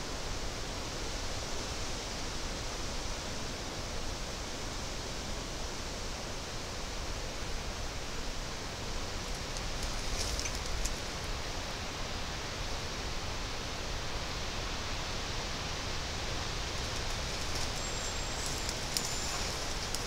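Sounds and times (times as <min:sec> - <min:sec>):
wind rustling foliage: 0:00.0 - 0:20.0
faint high thin whistles: 0:17.6 - 0:20.0.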